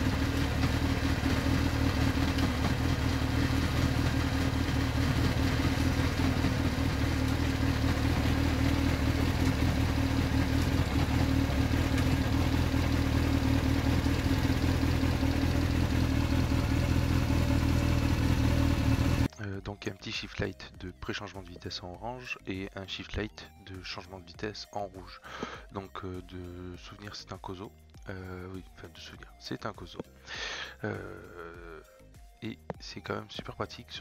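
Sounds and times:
motorcycle engine idling: 0.0s - 19.3s.

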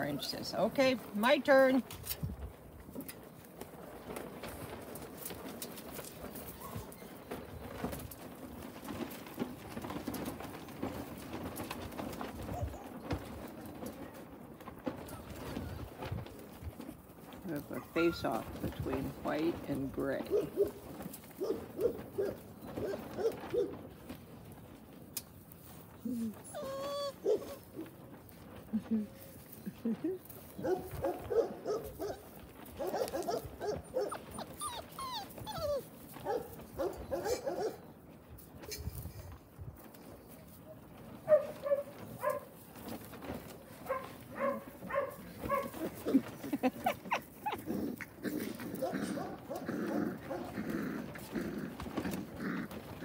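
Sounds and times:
puppies yipping: 12.4s - 13.2s, 20.3s - 23.8s, 26.3s - 28.0s, 30.6s - 37.8s, 43.8s - 50.6s.

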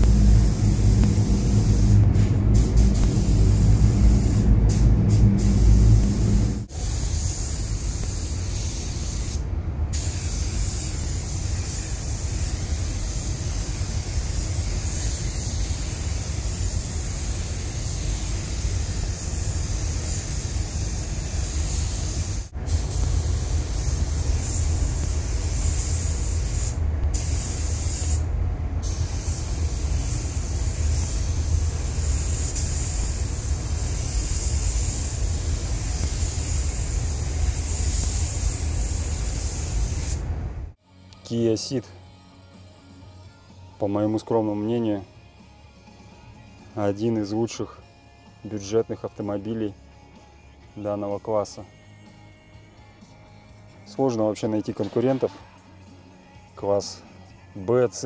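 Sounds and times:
paint spray gun hissing: 0.0s - 28.2s, 28.8s - 40.3s.

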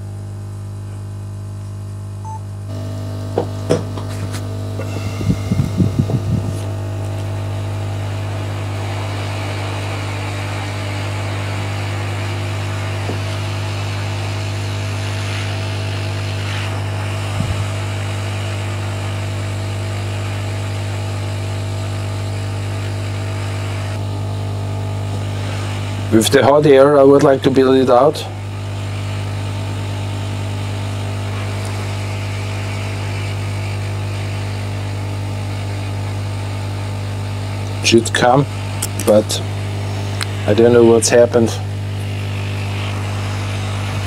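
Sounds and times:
hot air blower hissing: 0.0s - 44.0s.

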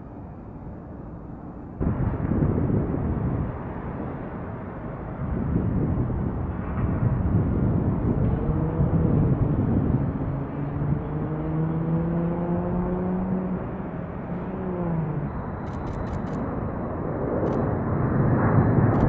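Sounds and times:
jet engines rumbling: 0.0s - 19.0s
quick clicks: 15.7s - 16.4s.

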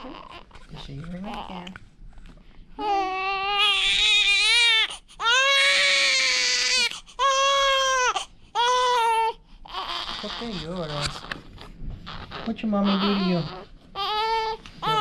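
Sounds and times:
newborn baby crying: 0.0s - 1.7s, 2.8s - 15.0s.

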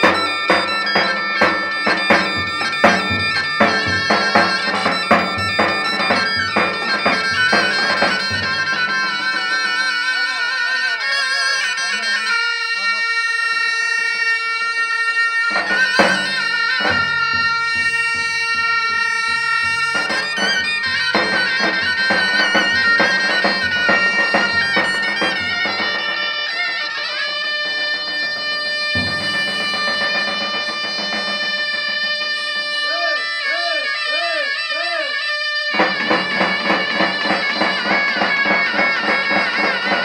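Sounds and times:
shawms playing folk tune: 0.0s - 40.0s.

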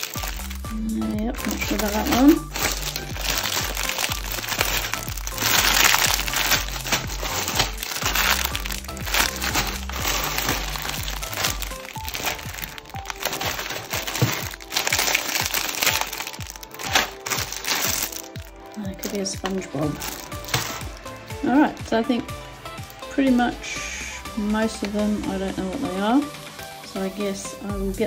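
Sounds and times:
plastic bags crinkling: 0.0s - 23.1s
background music with low beat: 0.0s - 28.0s.

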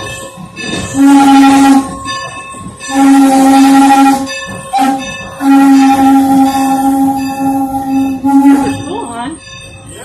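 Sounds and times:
steam locomotive whistle: 0.9s - 2.1s, 2.9s - 9.0s
bell ringing: 4.2s - 10.0s.

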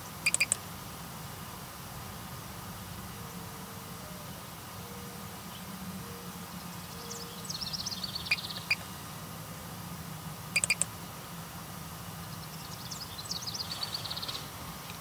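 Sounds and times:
songbird singing trill: 0.0s - 0.6s, 4.2s - 8.8s, 10.6s - 10.9s, 12.2s - 14.5s
sharp bird chirps: 0.2s - 0.6s, 10.6s - 10.9s.

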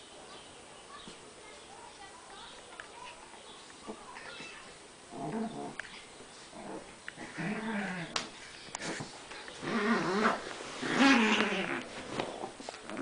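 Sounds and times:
small dog growling: 5.1s - 13.0s.

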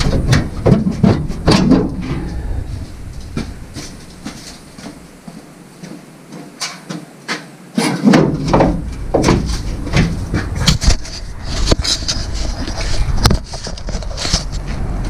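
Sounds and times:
low rumble: 0.0s - 5.8s, 8.7s - 13.6s
sharp knocks and clattering on metal: 0.0s - 14.8s.

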